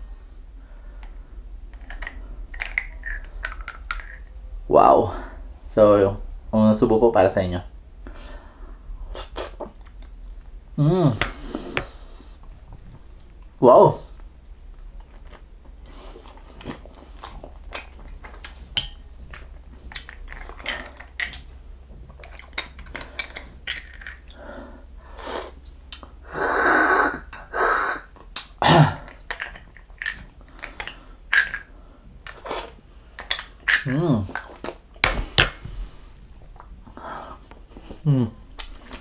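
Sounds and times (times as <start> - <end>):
person grunting: 10.8 - 11.3, 28.6 - 29.1, 38.0 - 38.4
chewing and lip smacking: 14.2 - 24.4, 28.1 - 31.6
airy sucking intakes: 24.4 - 28.2.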